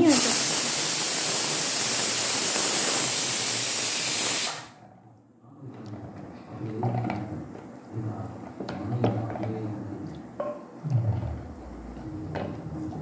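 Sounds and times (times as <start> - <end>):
pressure cooker steam hissing: 0.0 - 4.8.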